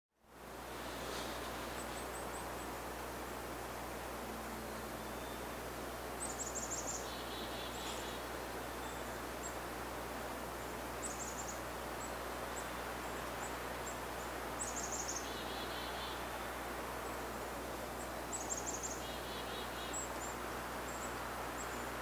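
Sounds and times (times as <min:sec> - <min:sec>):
background hiss: 0:00.2 - 0:22.0
songbird calling: 0:04.6 - 0:05.6, 0:06.2 - 0:09.6, 0:10.6 - 0:22.0.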